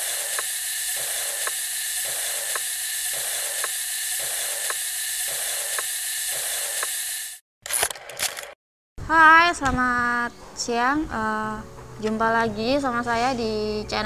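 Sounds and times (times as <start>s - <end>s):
sharp mechanical tick: 0.0s - 7.1s.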